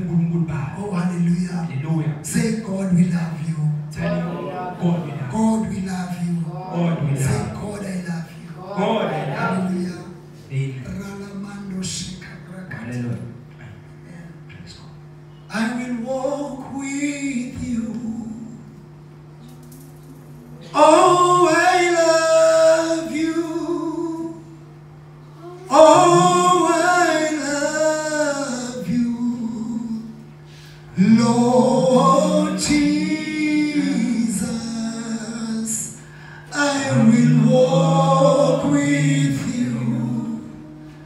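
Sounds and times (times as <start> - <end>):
steady low hum: 0.0 - 41.0
man singing through a microphone: 15.5 - 18.6, 20.7 - 24.4, 25.7 - 30.1, 30.9 - 40.7.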